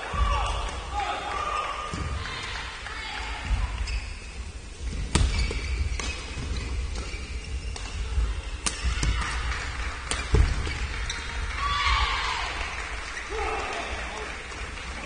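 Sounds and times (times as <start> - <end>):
rackets striking shuttlecock: 7.7 - 8.0, 8.6 - 10.8.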